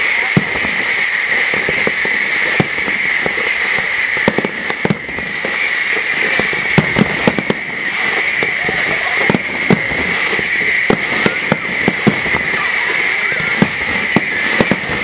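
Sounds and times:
crackling hiss: 0:00.0 - 0:15.0
firework shells bursting: 0:00.0 - 0:15.0.

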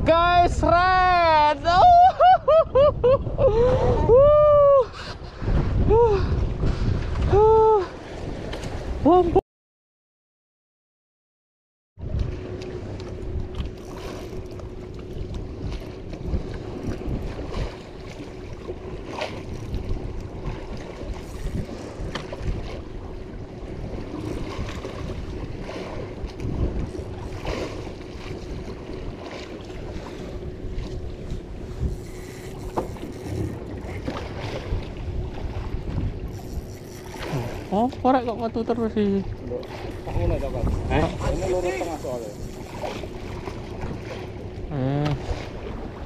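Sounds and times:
water around boat: 0:00.0 - 0:09.4, 0:12.0 - 0:46.0
wind on microphone: 0:00.0 - 0:09.4, 0:13.2 - 0:46.0
steady hum: 0:12.1 - 0:45.4.

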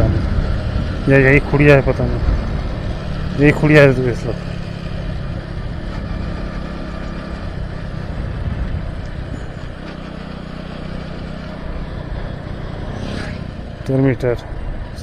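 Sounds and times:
wind noise on microphone: 0:00.0 - 0:01.1, 0:07.6 - 0:09.7
motorcycle engine running: 0:00.0 - 0:15.0.

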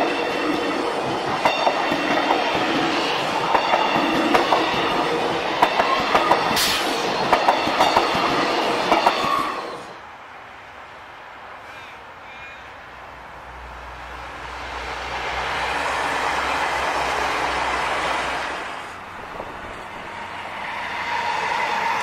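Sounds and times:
train wheels clicking over rail joints: 0:00.0 - 0:09.6
train running rumble: 0:00.0 - 0:09.8.

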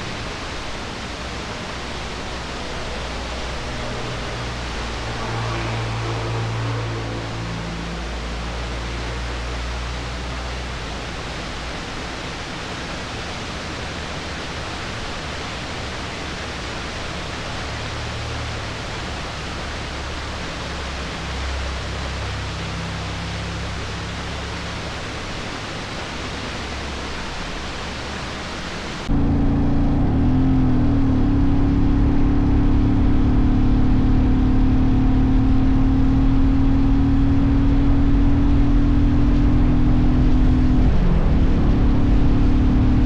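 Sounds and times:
small waterfall splashing: 0:00.0 - 0:29.1.

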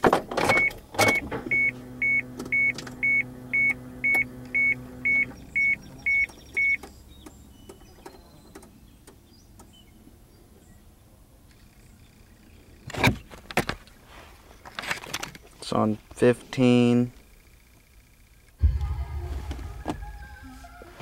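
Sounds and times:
car warning chime beeping: 0:00.5 - 0:06.8
low steady hum: 0:18.6 - 0:21.0.

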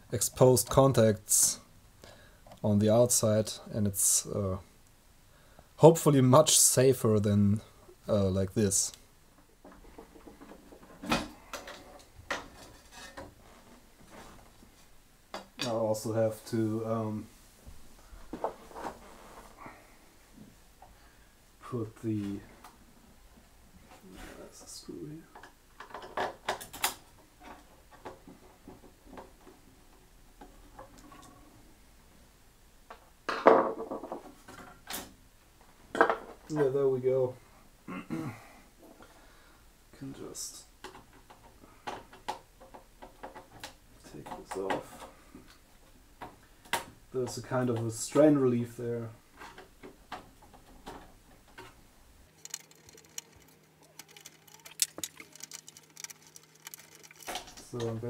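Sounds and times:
screwdriver clicks and scrapes: 0:52.3 - 0:57.5.

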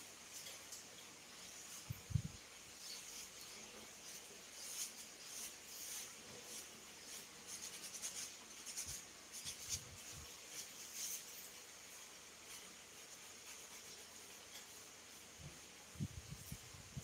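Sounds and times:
towel rubbing on head: 0:02.8 - 0:14.9.

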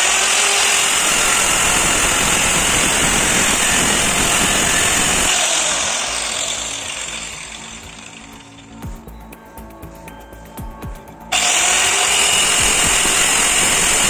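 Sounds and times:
electric tile cutter whining: 0:00.0 - 0:08.8, 0:11.3 - 0:14.0.

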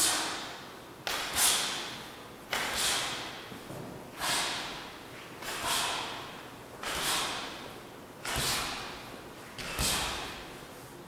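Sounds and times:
forceful hissing exhale: 0:02.6 - 0:03.4, 0:04.1 - 0:07.6.

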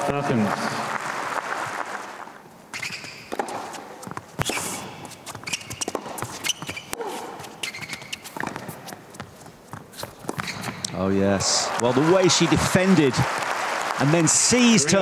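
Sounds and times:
tennis ball bouncing on hard court: 0:02.8 - 0:10.8.

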